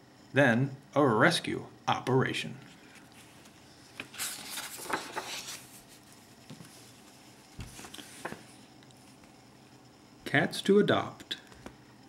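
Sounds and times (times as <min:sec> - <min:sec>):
book page rustling: 0:02.8 - 0:09.3
book thump: 0:07.6 - 0:08.4.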